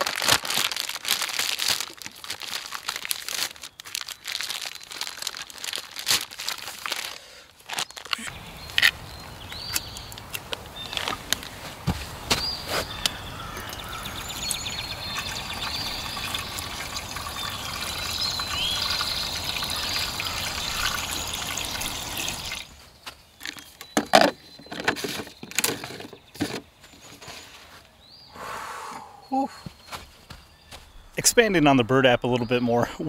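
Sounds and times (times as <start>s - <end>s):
birds singing: 7.7s - 33.0s
liquid pouring: 13.6s - 22.7s.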